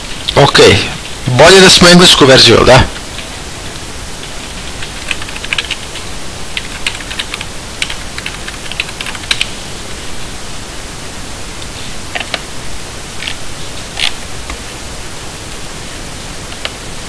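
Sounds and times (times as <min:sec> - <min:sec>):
steady hiss: 0:00.0 - 0:17.0
keyboard typing: 0:02.9 - 0:09.6, 0:12.1 - 0:12.5.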